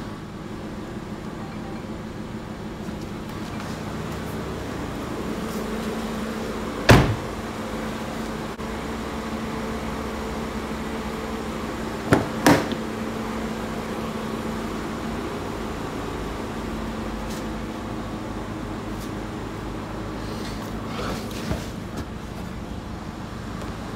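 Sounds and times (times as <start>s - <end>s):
steady mechanical hum: 0.0s - 23.9s
car door shutting thud: 6.8s - 7.3s.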